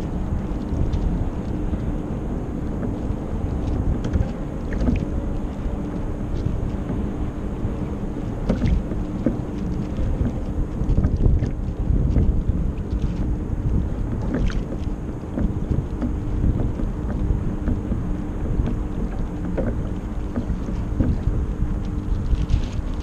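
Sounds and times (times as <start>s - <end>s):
faint steady hum: 0.0s - 23.0s
water rushing along a boat hull: 0.0s - 23.0s
wind buffeting microphone: 0.0s - 23.0s.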